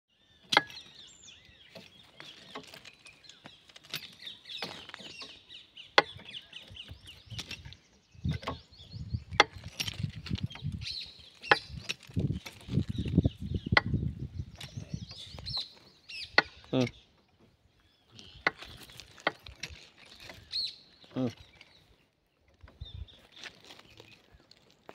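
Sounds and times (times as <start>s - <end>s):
birds chirping: 0.1s - 24.9s.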